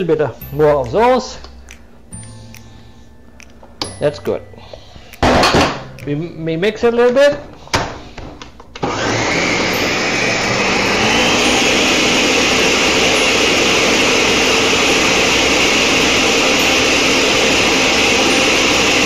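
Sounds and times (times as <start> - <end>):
blender running: 8.8 - 19.0.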